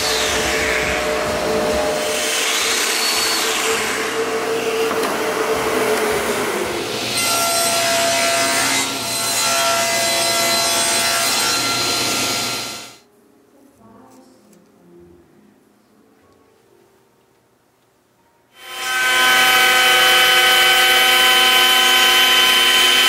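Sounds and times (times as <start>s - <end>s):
power joiner cutting wood: 0.0s - 13.0s, 18.6s - 23.0s
table saw cutting wood: 0.0s - 13.0s, 18.6s - 23.0s.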